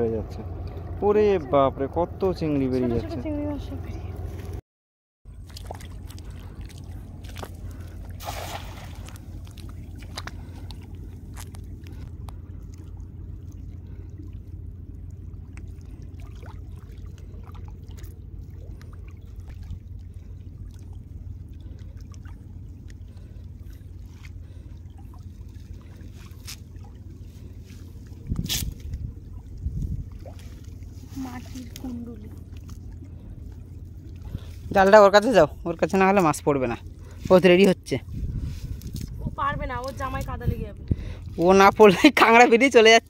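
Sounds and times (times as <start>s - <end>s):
low rumble: 0.0s - 4.6s, 5.3s - 42.2s
water sloshing and trickling: 0.0s - 4.6s, 5.3s - 43.0s
water splash: 5.4s - 12.0s.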